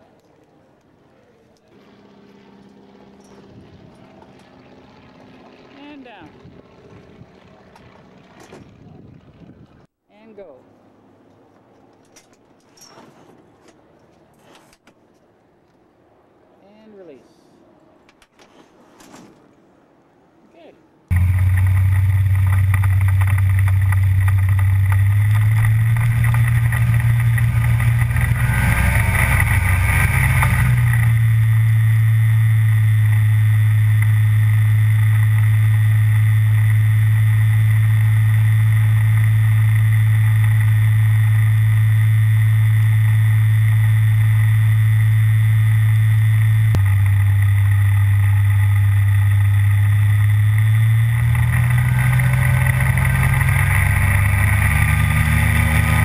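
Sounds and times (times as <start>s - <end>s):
aircraft engine running: 1.7s - 9.9s, 21.1s - 56.0s.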